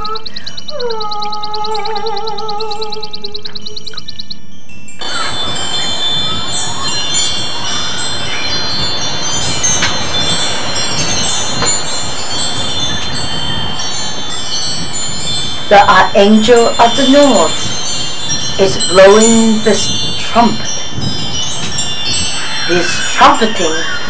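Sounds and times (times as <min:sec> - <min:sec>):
wind chimes tinkling: 0:00.0 - 0:24.0
steady hiss: 0:05.0 - 0:24.0.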